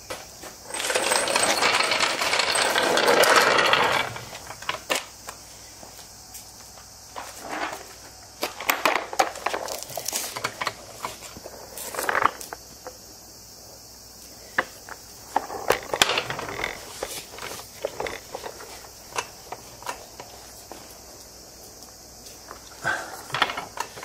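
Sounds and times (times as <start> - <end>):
handling clicks and scrapes: 14.9 - 21.0.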